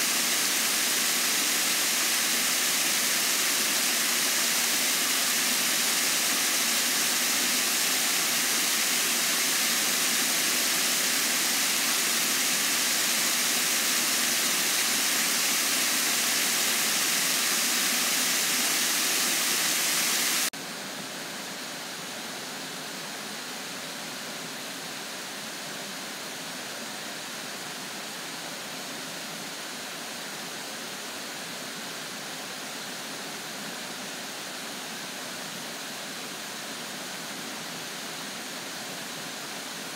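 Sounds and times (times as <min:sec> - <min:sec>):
water flowing down channel: 0:00.0 - 0:20.5
water pouring over spillway: 0:00.0 - 0:20.5.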